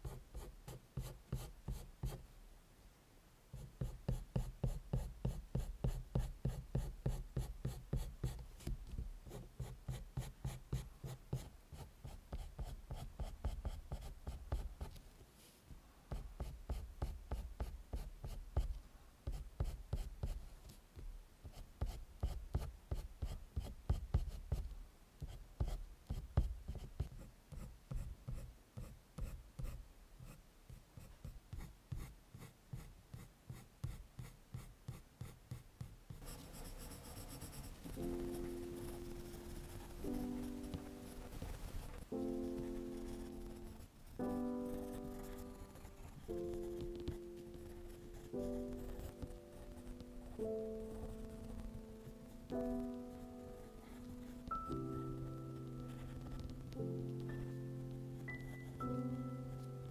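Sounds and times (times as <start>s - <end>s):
pencil scratching on paper: 0.0s - 2.2s, 3.6s - 8.4s, 9.3s - 14.9s, 16.1s - 20.4s, 31.0s - 54.5s.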